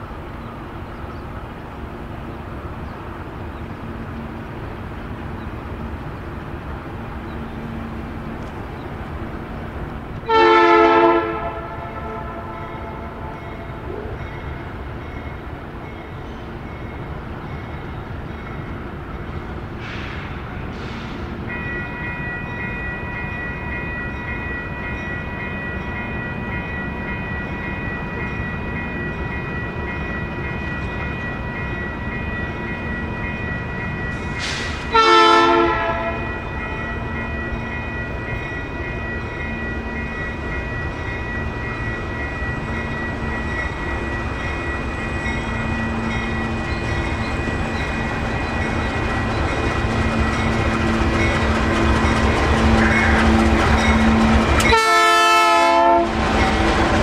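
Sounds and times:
diesel locomotives passing: 0:00.0 - 0:57.0
train air horn blasts: 0:10.2 - 0:14.1, 0:34.4 - 0:36.3, 0:54.6 - 0:56.2.

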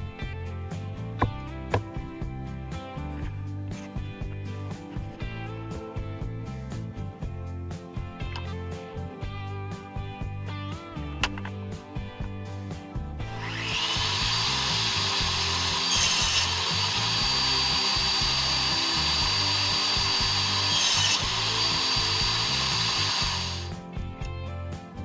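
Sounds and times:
faint background music: 0:00.0 - 0:25.0
harsh saw cutting bursts: 0:13.2 - 0:23.7
table saw whining: 0:13.2 - 0:23.7.

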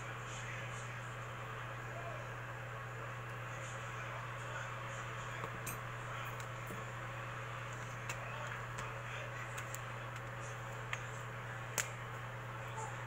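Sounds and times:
low hum and hiss: 0:00.0 - 0:13.0
faint clicks and taps: 0:07.7 - 0:12.0.

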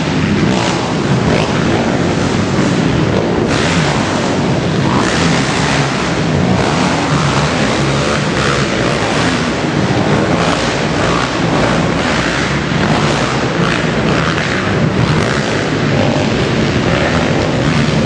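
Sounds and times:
racing engines revving: 0:00.0 - 0:18.0.

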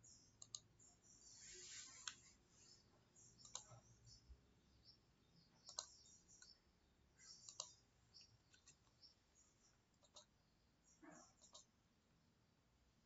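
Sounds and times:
faint mouse clicks: 0:00.4 - 0:00.8, 0:01.8 - 0:04.2, 0:05.5 - 0:06.6, 0:07.2 - 0:11.8.

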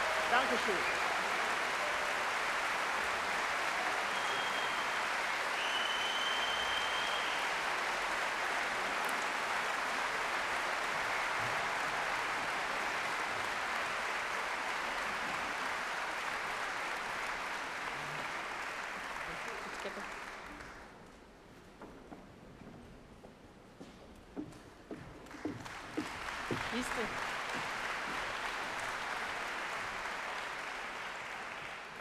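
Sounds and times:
audience applauding: 0:00.0 - 0:21.0, 0:25.2 - 0:32.0
high whistle: 0:04.1 - 0:07.5.

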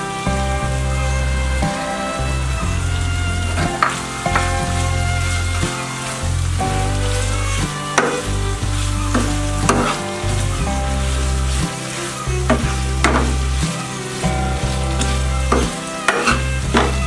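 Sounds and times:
background music with bass line: 0:00.0 - 0:17.0
chicken sizzling in a pan: 0:00.0 - 0:17.0
spatula scraping a pan: 0:00.0 - 0:17.0.

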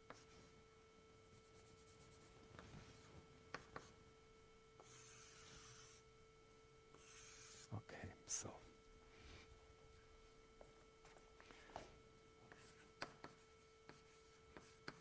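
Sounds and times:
faint steady hum: 0:00.0 - 0:15.0
chalk scraping on blackboard: 0:04.8 - 0:06.0, 0:07.0 - 0:07.7
chalk tapping and scratching: 0:12.5 - 0:15.0.

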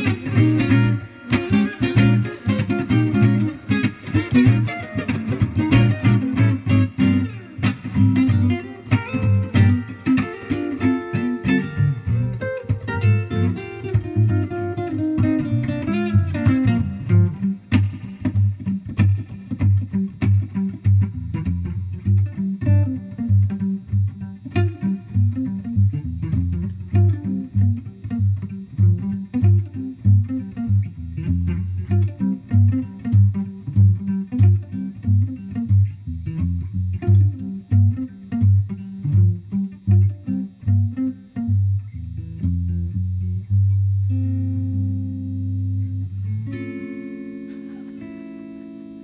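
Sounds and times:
electric guitars playing funk: 0:00.0 - 0:49.0.

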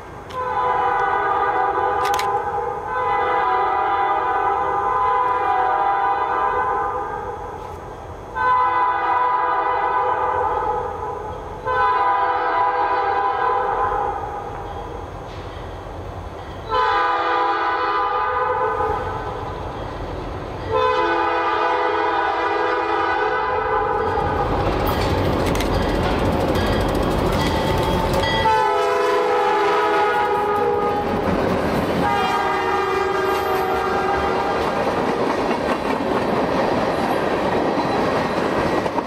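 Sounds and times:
train rumble: 0:00.0 - 0:39.0
locomotive air horn blasts: 0:00.3 - 0:07.4, 0:08.4 - 0:11.0, 0:11.6 - 0:14.2, 0:16.7 - 0:19.2, 0:20.7 - 0:24.2, 0:28.4 - 0:31.1, 0:32.0 - 0:34.6.

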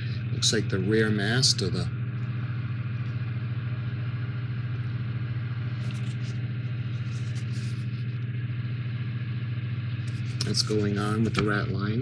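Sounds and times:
low mechanical hum: 0:00.0 - 0:12.0
paper rustling: 0:05.8 - 0:07.8.

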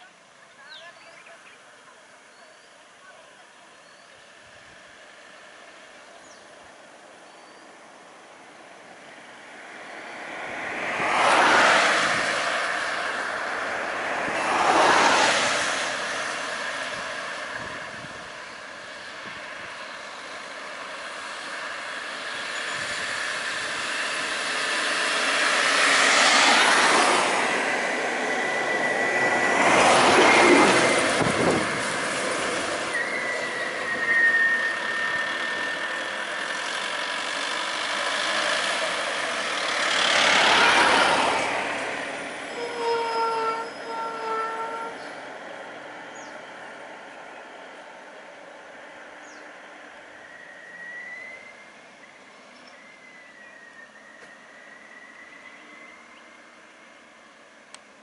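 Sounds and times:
steady road noise: 0:00.0 - 0:58.0
vehicles passing by: 0:00.0 - 0:58.0
thin high squeal: 0:32.9 - 0:36.2, 0:42.4 - 0:45.1.

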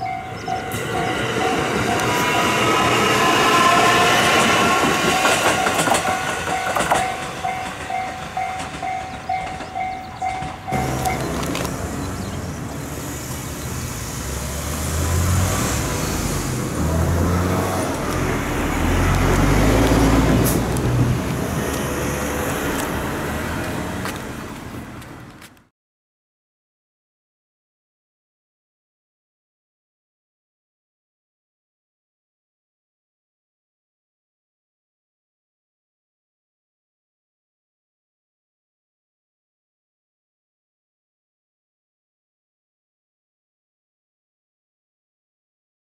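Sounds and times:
level crossing bell ringing: 0:05.6 - 0:11.3
electric train motor whine: 0:10.7 - 0:15.2.

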